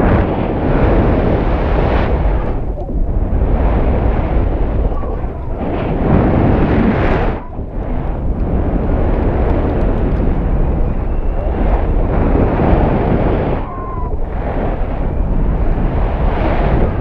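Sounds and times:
wind buffeting microphone: 0.0 - 17.0.

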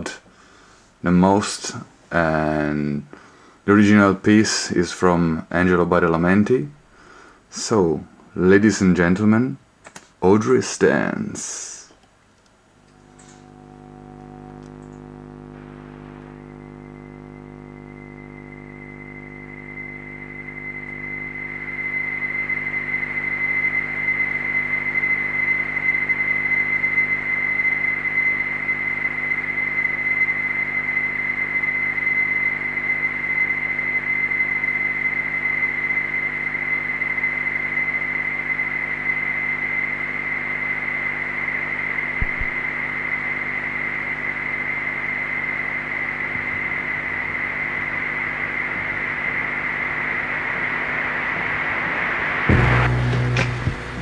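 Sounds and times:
low held synth tones: 12.8 - 54.0
piercing high whistle-like tone: 12.9 - 53.1
hissing electronic wash: 42.0 - 54.0.

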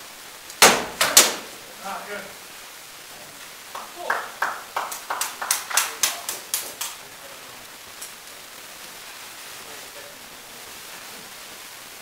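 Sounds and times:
steady hiss: 0.0 - 12.0
rattan swords striking shields: 0.6 - 1.5.

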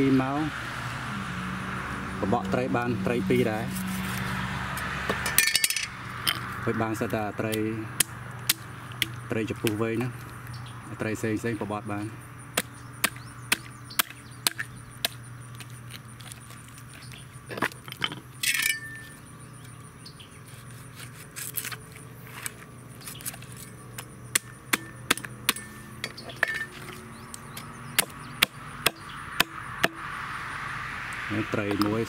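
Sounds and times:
scraping noise: 3.0 - 4.4.

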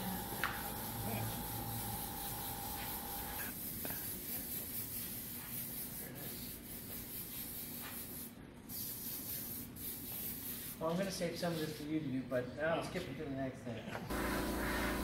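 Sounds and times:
airbrush hissing: 0.0 - 10.8.

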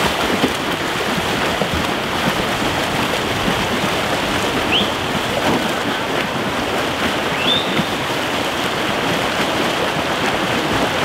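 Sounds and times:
swimmers splashing: 0.0 - 11.0.

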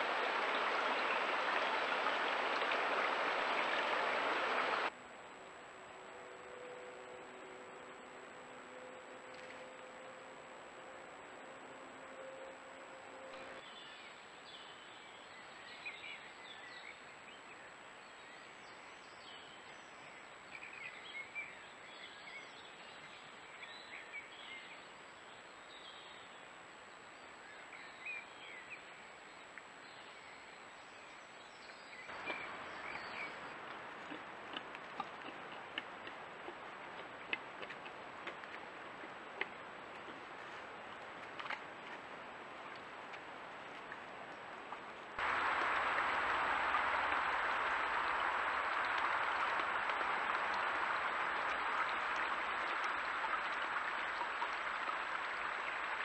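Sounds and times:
faint hiss: 39.3 - 56.0.

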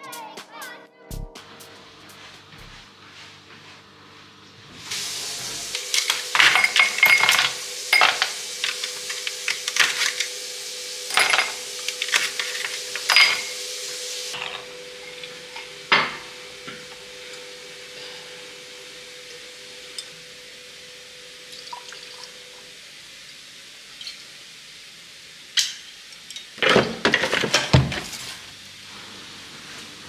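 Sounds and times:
ice clinking on glass: 6.0 - 8.4, 11.1 - 13.5.

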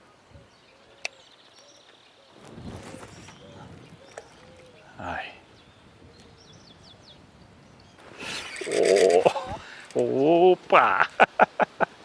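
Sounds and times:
faint bird calls: 0.0 - 7.2, 7.8 - 9.8.

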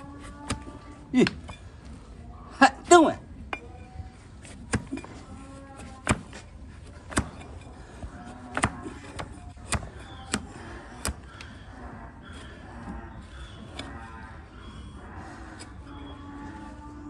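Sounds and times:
blade cutting hoof: 0.2 - 1.5, 4.4 - 11.6.

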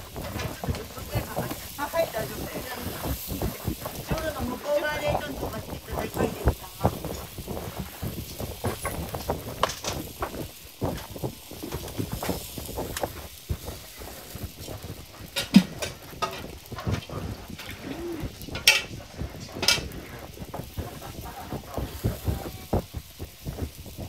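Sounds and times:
faint voices: 16.8 - 18.9, 19.6 - 23.4.

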